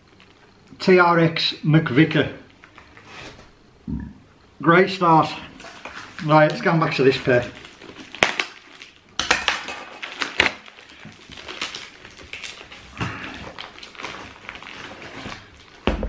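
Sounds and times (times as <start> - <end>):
packaging rustling: 5.4 - 16.0.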